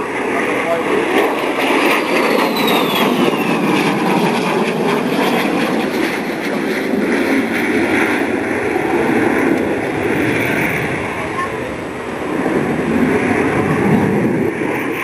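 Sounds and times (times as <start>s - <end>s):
jet engine roaring: 0.0s - 15.0s
high whistle falling in pitch: 2.4s - 3.5s.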